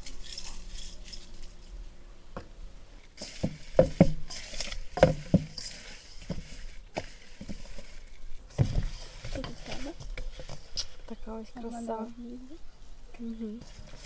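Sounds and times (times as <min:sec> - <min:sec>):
potatoes knocking against bowl: 0:03.3 - 0:07.8.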